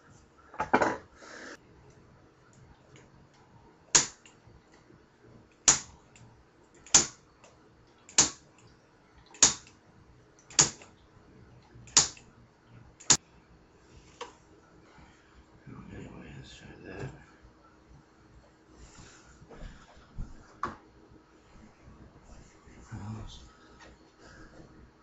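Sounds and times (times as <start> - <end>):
spark igniter clicks: 3.9 - 4.4, 5.6 - 6.0, 6.8 - 7.2, 8.1 - 8.4, 9.4 - 9.8, 10.5 - 10.9, 11.9 - 12.3, 13.0 - 13.2.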